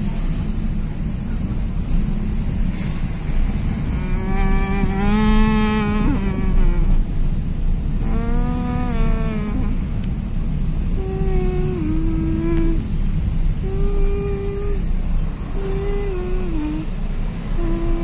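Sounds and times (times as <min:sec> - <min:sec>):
vehicle road and engine rumble: 0:00.0 - 0:18.0
long pitched tones: 0:11.0 - 0:12.9, 0:13.6 - 0:16.9, 0:17.5 - 0:18.0.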